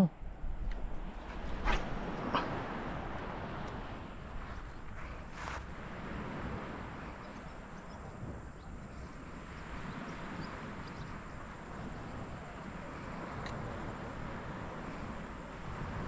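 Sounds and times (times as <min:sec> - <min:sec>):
wind rumble on microphone: 0:00.0 - 0:16.0
faint high ticks: 0:13.3 - 0:13.7.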